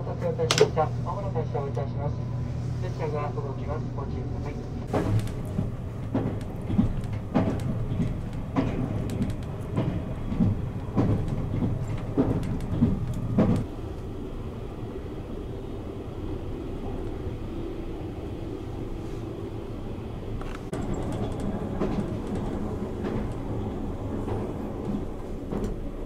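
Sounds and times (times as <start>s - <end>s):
train running rumble: 0.0s - 26.0s
regular train wheel knocks: 4.9s - 13.7s, 20.4s - 26.0s.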